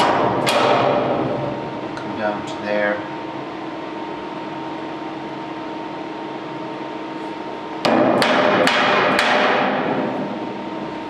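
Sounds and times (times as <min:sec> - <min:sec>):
hammer striking steel bracket: 0:07.8 - 0:10.0.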